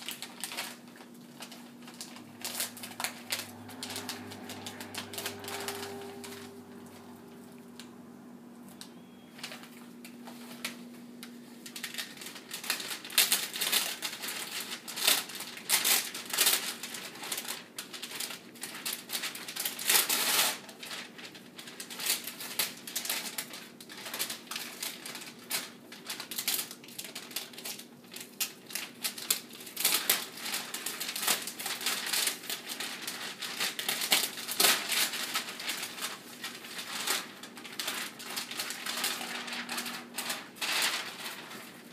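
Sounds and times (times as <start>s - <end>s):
wrapping paper crinkling and tearing: 0.0s - 7.9s, 8.6s - 41.9s.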